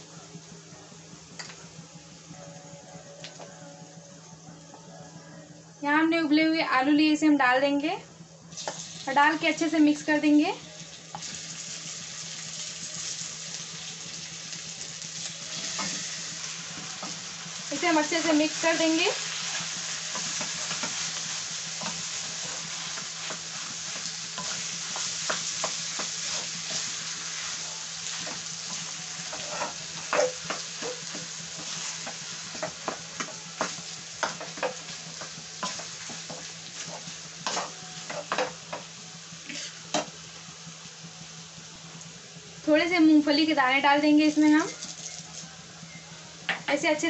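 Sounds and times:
frying sizzle: 0:07.8 - 0:45.8
spatula knocking and scraping pan: 0:28.2 - 0:38.9.

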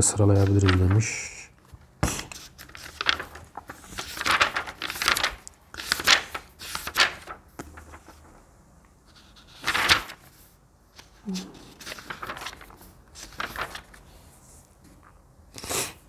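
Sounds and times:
paper rustling and crinkling: 0:00.3 - 0:08.4, 0:09.0 - 0:14.8.

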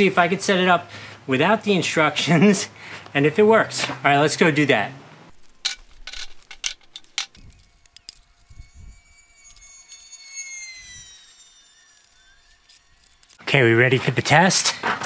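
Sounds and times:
metal poles clicking and knocking: 0:05.4 - 0:08.2
faint high falling tone: 0:07.4 - 0:13.4.

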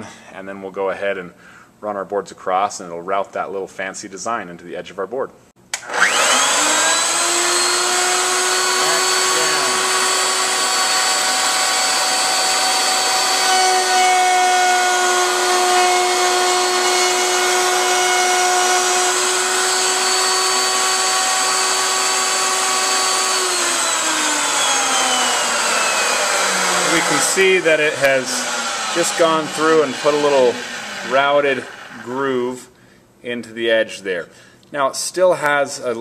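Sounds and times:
router motor whine: 0:05.8 - 0:32.1
router bit cutting wood: 0:05.8 - 0:32.4.

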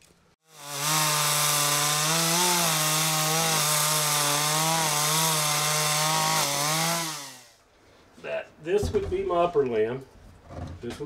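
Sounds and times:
chainsaw cutting log: 0:00.4 - 0:07.6.

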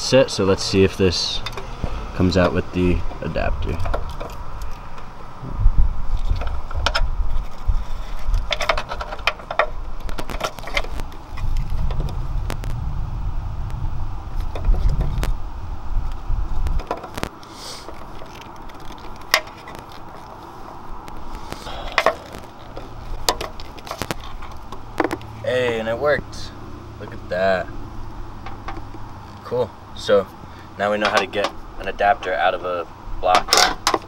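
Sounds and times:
low rumble: 0:01.0 - 0:08.6, 0:09.7 - 0:16.9
clicks and rattles of parts: 0:06.2 - 0:11.7, 0:16.8 - 0:20.4, 0:21.1 - 0:25.3, 0:31.0 - 0:31.6, 0:33.3 - 0:34.0.

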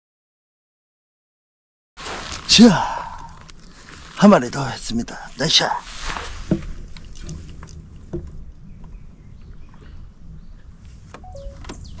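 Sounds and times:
two-note tone: 0:11.2 - 0:12.0.

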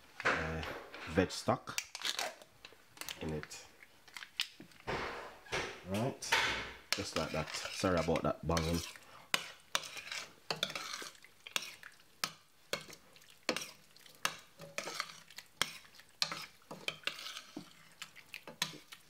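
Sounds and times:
light sizzle: 0:06.8 - 0:19.0
utensil scraping a pot: 0:06.9 - 0:19.0.

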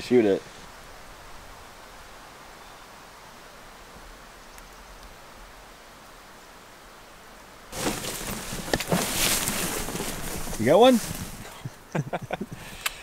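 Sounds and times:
faint steady hiss: 0:00.0 - 0:13.0
rustling of brush and clothing: 0:00.0 - 0:13.0.

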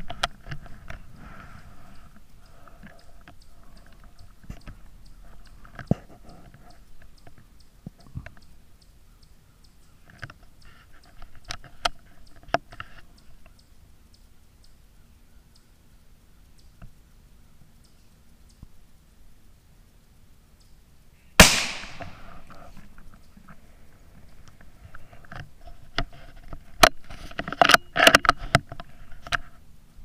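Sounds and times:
rifle handling clicks and knocks: 0:24.3 - 0:29.5.

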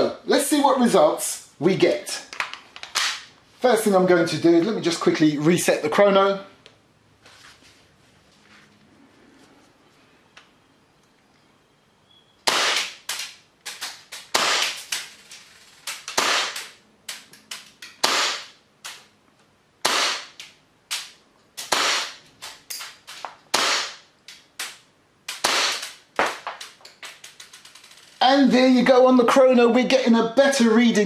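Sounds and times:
airsoft pistol shots: 0:12.4 - 0:15.0, 0:16.0 - 0:16.8, 0:18.0 - 0:18.6, 0:19.8 - 0:22.2, 0:23.5 - 0:24.1, 0:25.3 - 0:26.4.

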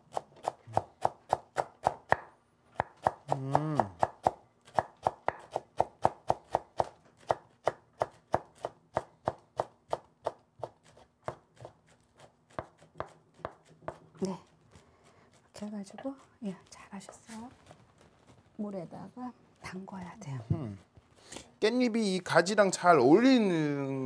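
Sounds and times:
knife chopping on wooden board: 0:00.1 - 0:14.1.

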